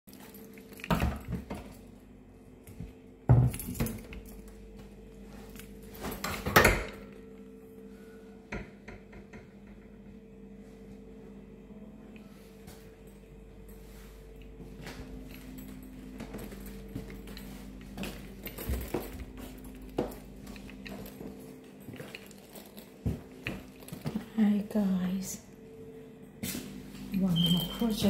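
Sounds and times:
steady low hum: 0:00.1 - 0:28.0.

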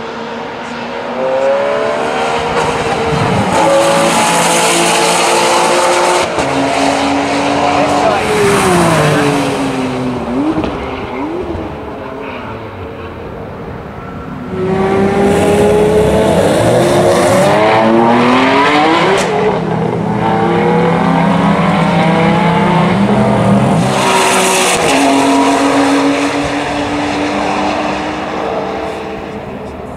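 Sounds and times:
sports car engine revving: 0:01.1 - 0:12.0.

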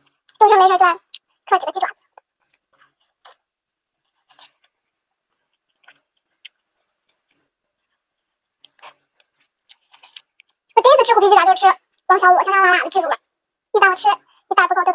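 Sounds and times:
person chewing and sucking: 0:05.4 - 0:07.4, 0:08.6 - 0:10.8.

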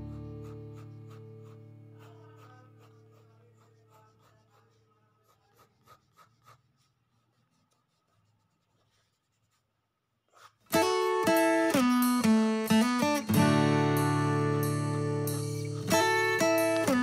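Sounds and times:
pencil scratching on paper: 0:00.0 - 0:11.9
guitar chord: 0:10.8 - 0:17.0.

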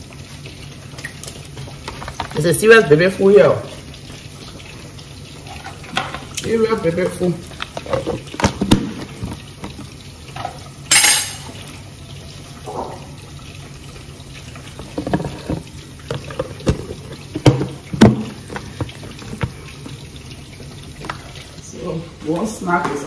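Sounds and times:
plastic knocking on plastic: 0:07.6 - 0:09.9, 0:14.8 - 0:19.9.

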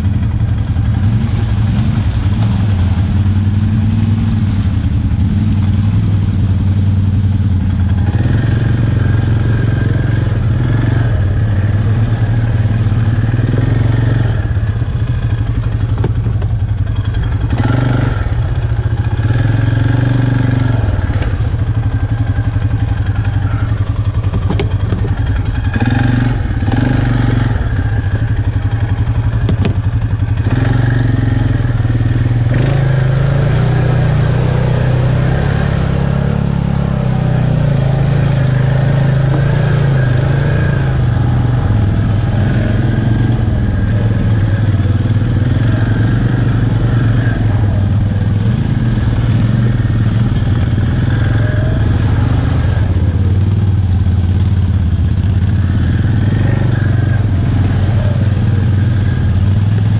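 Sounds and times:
quad bike engine revving: 0:00.0 - 0:59.9
knocks from rough trail: 0:15.7 - 0:17.2, 0:24.0 - 0:30.4.

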